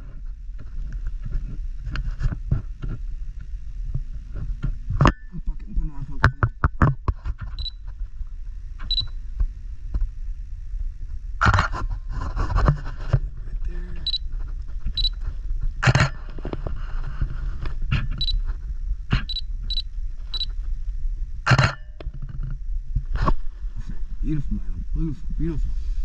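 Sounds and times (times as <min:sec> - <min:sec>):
steady low rumble: 0:00.0 - 0:26.0
camera beeping: 0:07.6 - 0:07.8, 0:08.8 - 0:09.2, 0:14.0 - 0:14.2, 0:14.9 - 0:15.2, 0:18.2 - 0:18.4, 0:19.1 - 0:20.5.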